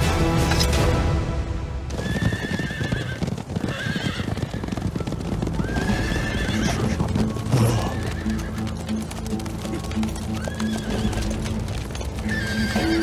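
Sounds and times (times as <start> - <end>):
horses galloping hoofbeats: 1.8 - 13.0
horse whinnying: 1.9 - 8.8, 10.3 - 11.6, 12.2 - 13.0.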